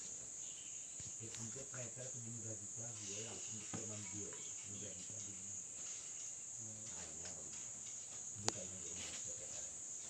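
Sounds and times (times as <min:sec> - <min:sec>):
crickets chirring: 0:00.0 - 0:10.0.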